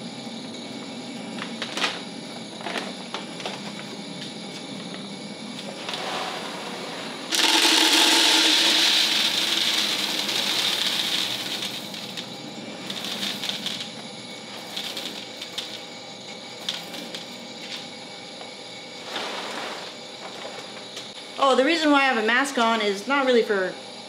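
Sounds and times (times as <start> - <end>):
coffee beans pouring into container: 7.3 - 13.9, 14.5 - 15.8, 16.6 - 17.3.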